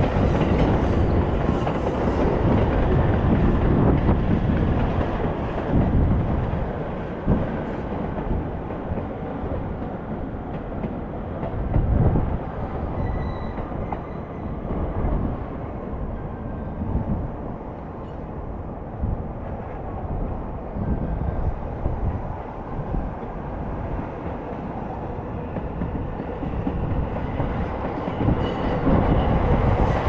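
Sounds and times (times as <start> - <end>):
trains rumbling on tracks: 0.0 - 30.0.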